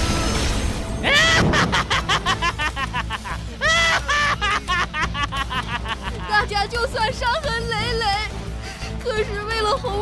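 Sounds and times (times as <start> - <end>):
background music: 0.0 - 10.0
cartoon villain laughing: 1.0 - 6.3.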